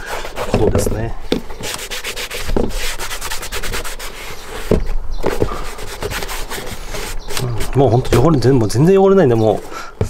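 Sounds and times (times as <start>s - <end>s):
cloth rubbing on leather boot: 1.3s - 8.3s.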